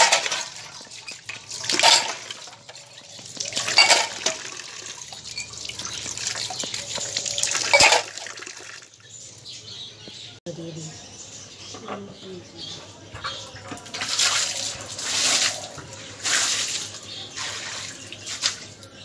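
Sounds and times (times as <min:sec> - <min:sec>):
tap water running into steel bowl: 0:00.0 - 0:09.0
splashing and metal clinking: 0:00.0 - 0:09.7, 0:13.2 - 0:19.0.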